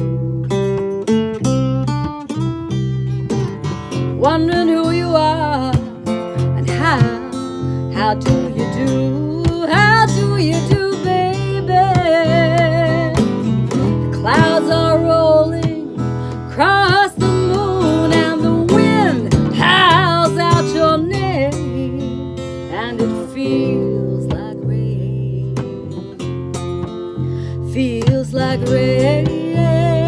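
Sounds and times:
acoustic bass guitar: 0:00.0 - 0:30.0
strummed acoustic guitar: 0:00.0 - 0:30.0
woman singing with vibrato: 0:04.1 - 0:25.8, 0:27.4 - 0:30.0.

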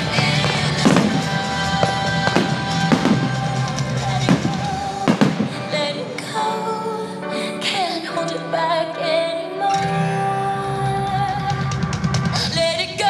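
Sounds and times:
music with drum beat: 0:00.0 - 0:05.7.

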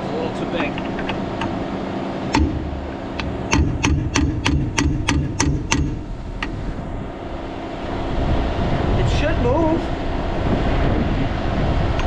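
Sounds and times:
engine running: 0:00.0 - 0:12.0
hammer striking steel bolt: 0:02.3 - 0:06.6.

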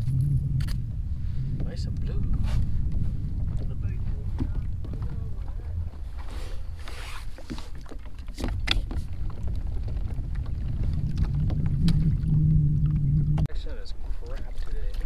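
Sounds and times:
water lapping against kayak hull: 0:00.0 - 0:15.0
wind rumbling on microphone: 0:00.0 - 0:15.0.

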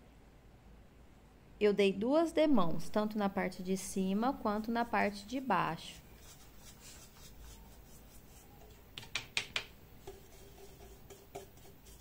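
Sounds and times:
paintbrush brushing on plastic: 0:04.5 - 0:08.9, 0:10.0 - 0:12.0.

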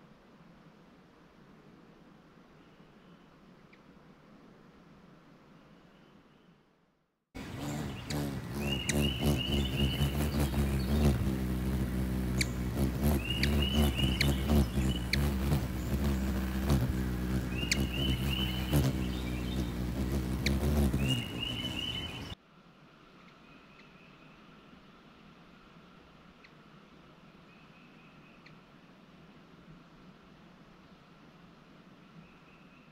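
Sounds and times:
hummingbird wings humming: 0:07.4 - 0:22.4.

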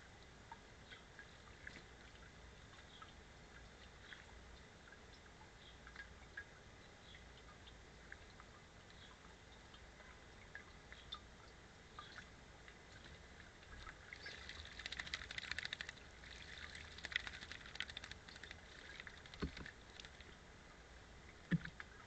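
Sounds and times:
faint ticks: 0:00.0 - 0:20.4
bird splashing in water: 0:13.8 - 0:20.4.

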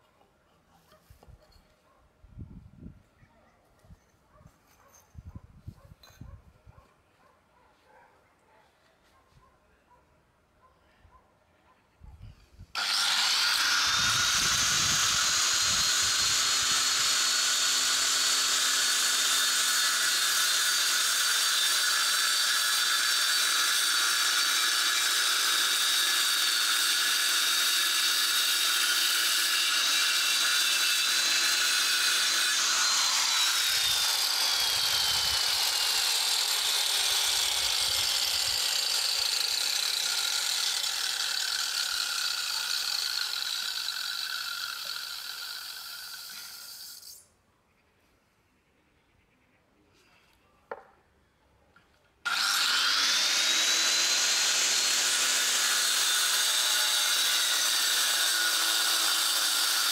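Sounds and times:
angle grinder cutting brick: 0:12.7 - 0:47.2, 0:52.2 - 0:59.9.

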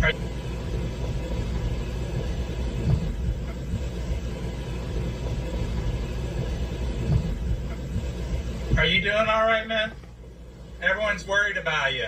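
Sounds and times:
low rumble: 0:00.0 - 0:10.9
soft thumps: 0:01.1 - 0:09.0.

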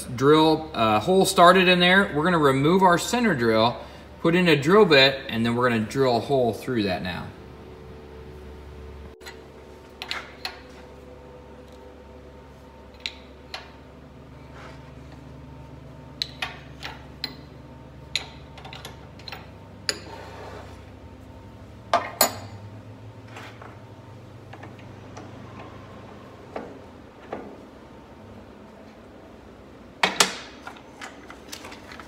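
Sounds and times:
low steady hum: 0:00.0 - 0:32.0
metal clicks and clanks of tools: 0:09.2 - 0:10.6, 0:18.1 - 0:20.1.

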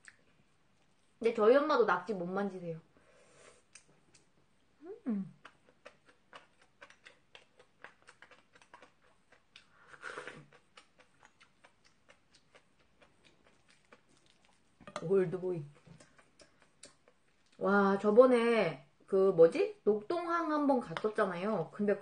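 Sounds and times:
wet chewing clicks and smacks: 0:05.4 - 0:14.9, 0:15.6 - 0:17.6.

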